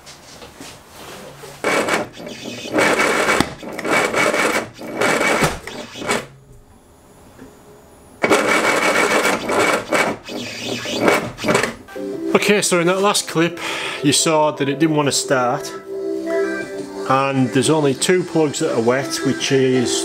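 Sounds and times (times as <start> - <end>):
engine cranking on starter: 1.6 - 6.4, 8.2 - 11.8.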